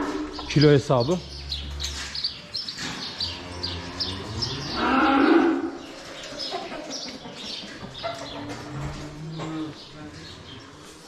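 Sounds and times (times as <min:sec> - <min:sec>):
small birds chirping: 0:00.2 - 0:11.0
cow mooing: 0:03.1 - 0:05.8.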